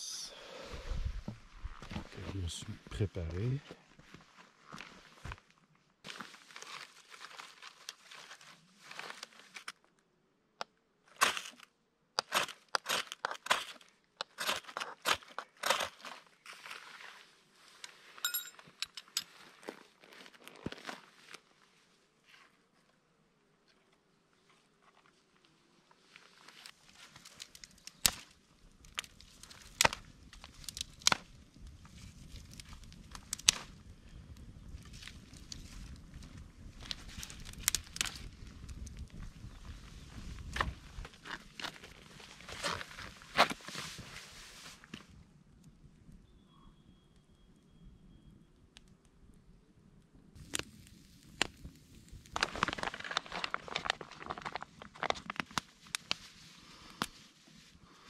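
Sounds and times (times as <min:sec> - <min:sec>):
dry wood and brush crunching: 0:03.1 - 0:09.8, 0:11.1 - 0:18.2, 0:19.2 - 0:21.5, 0:24.4 - 0:33.9, 0:34.6 - 0:45.0, 0:50.4 - 0:58.0
firewood snapping: 0:27.1 - 0:31.4, 0:32.3 - 0:33.8, 0:36.8 - 0:39.1, 0:50.4 - 0:54.6.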